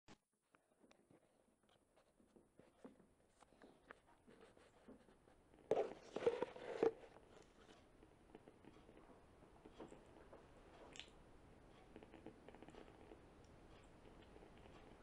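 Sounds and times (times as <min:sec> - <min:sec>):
paper pages rustling: 0:05.7 - 0:07.8.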